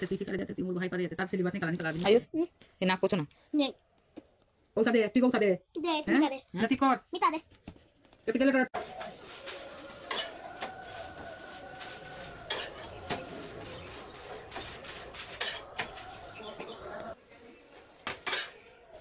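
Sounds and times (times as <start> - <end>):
utensils clinking on pan: 8.8 - 10.9, 12.4 - 13.3, 14.1 - 16.0, 18.2 - 18.6
kitchen hum: 8.8 - 17.2.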